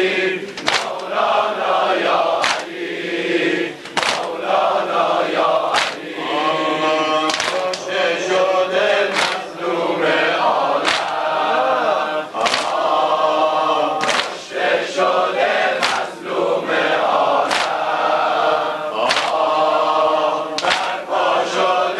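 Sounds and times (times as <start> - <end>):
crowd of men chanting: 0.0 - 21.9
chest-beating slaps in unison: 0.5 - 1.2, 2.3 - 2.8, 3.8 - 4.6, 5.7 - 6.2, 7.3 - 8.0, 9.1 - 9.7, 10.8 - 11.4, 12.4 - 13.0, 14.0 - 14.6, 15.7 - 16.3, 17.4 - 18.0, 19.0 - 19.7, 20.5 - 21.1.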